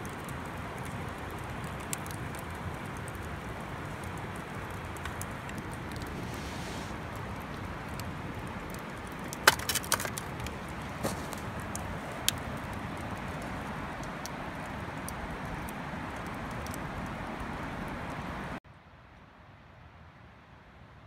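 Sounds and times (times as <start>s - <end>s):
wood fire crackling and popping: 0.0s - 18.2s
steady hiss of fire: 0.0s - 21.0s.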